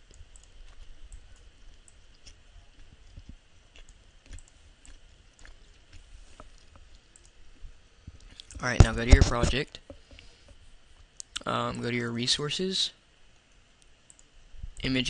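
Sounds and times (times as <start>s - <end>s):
computer mouse clicks: 0.0s - 2.4s, 3.2s - 5.6s, 13.8s - 14.9s
low steady hum: 0.0s - 15.0s.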